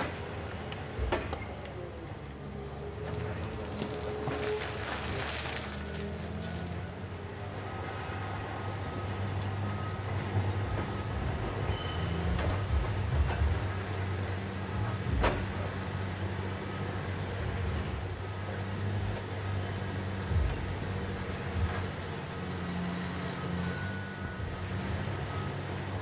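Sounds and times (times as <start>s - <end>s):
diesel engines running: 0.0s - 26.0s.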